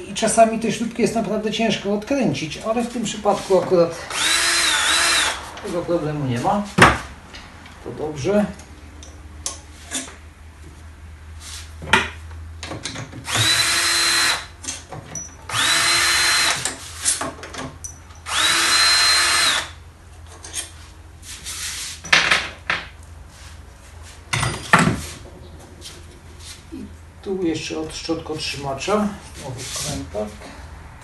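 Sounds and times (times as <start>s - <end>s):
cordless drill motor spinning: 4.1s - 5.5s, 13.3s - 14.5s, 15.5s - 16.7s, 18.3s - 19.8s.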